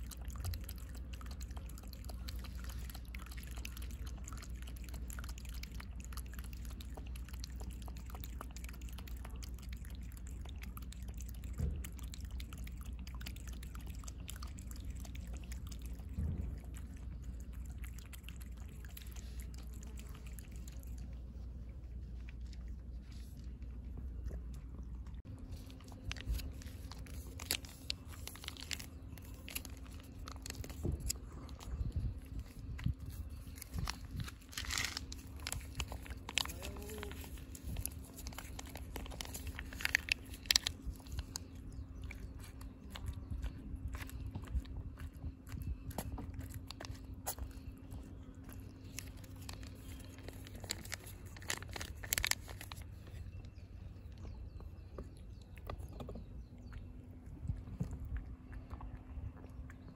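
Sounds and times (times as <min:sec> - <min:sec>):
cat chewing wet food: 0:00.0 - 0:59.9
plastic pouch crinkling: 0:25.5 - 0:32.0, 0:33.1 - 0:41.4, 0:48.6 - 0:53.2.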